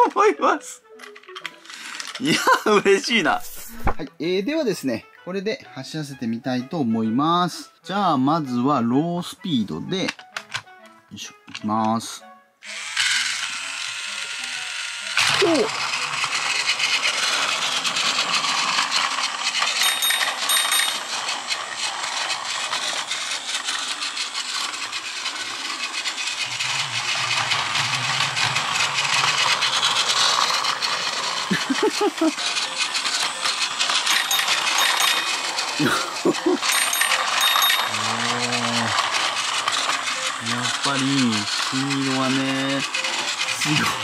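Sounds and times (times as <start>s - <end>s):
toy train rattling clicks: 1.0s - 2.4s, 10.0s - 10.7s, 12.6s - 44.0s.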